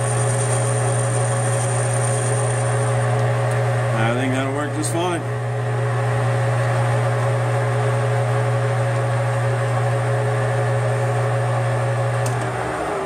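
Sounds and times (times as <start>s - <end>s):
metal lathe humming and whining: 0.0s - 9.2s.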